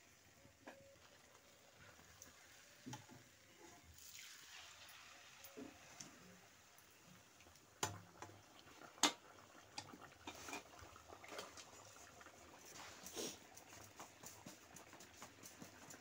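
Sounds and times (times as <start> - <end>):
dough sizzling in hot oil: 0.0 - 16.0.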